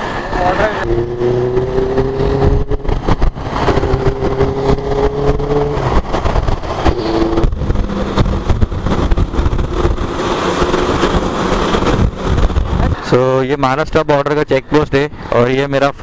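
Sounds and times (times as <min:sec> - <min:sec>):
wind and road noise: 0:00.0 - 0:16.0
motorcycle engine running: 0:00.8 - 0:13.0.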